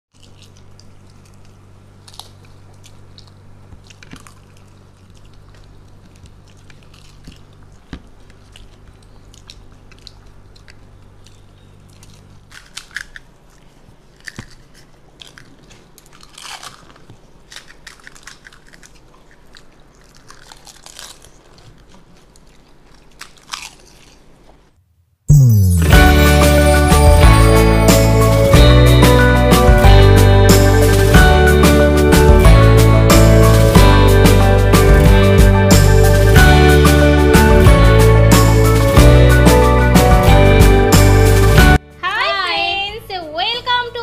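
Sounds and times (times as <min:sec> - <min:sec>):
crunching and chewing crisp shells: 0:00.1 - 0:24.8
low steady hum: 0:00.2 - 0:44.0.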